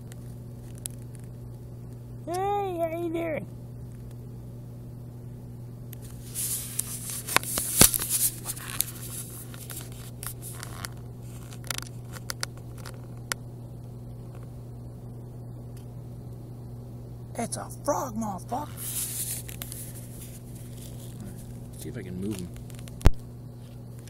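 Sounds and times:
steady low hum: 0.0s - 24.0s
handling noise scraping and rustling: 6.0s - 12.8s, 18.8s - 22.8s
sharp clicks: 22.3s - 23.3s.

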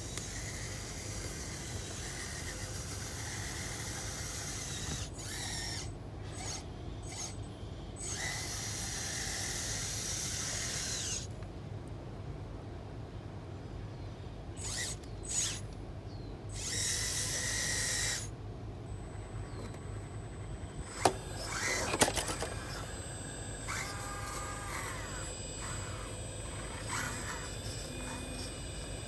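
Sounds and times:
small electric motors whirring: 0.0s - 11.4s, 14.6s - 15.7s, 16.5s - 18.3s, 20.7s - 29.0s.

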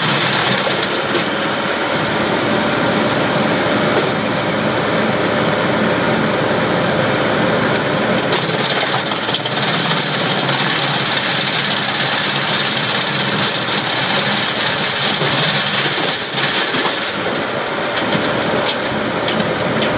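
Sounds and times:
diesel engine running: 0.0s - 19.9s
wood chips rushing hiss: 9.1s - 17.9s.

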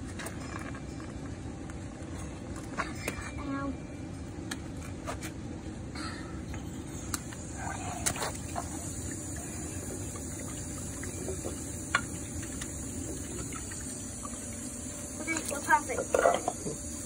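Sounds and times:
water trickling and splashing: 6.9s - 17.0s.

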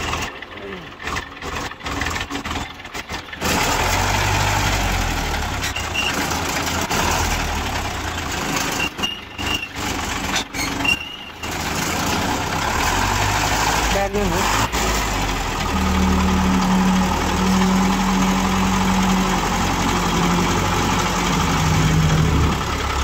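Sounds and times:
truck engine running: 0.0s - 23.0s
short high squeaks: 5.6s - 6.3s, 8.6s - 11.5s.

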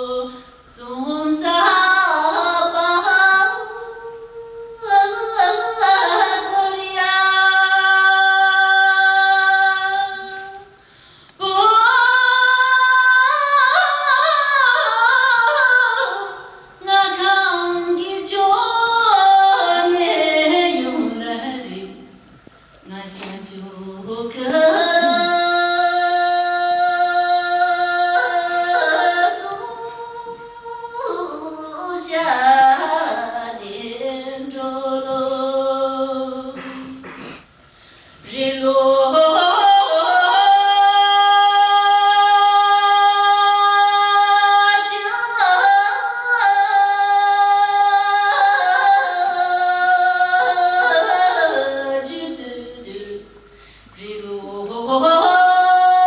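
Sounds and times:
woman singing solo: 22.9s - 36.9s.

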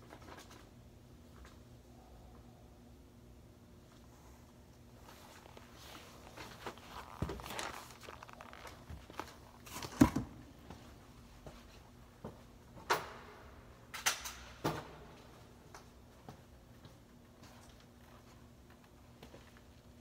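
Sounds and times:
shoes scuffing on hard floor: 5.0s - 10.1s.

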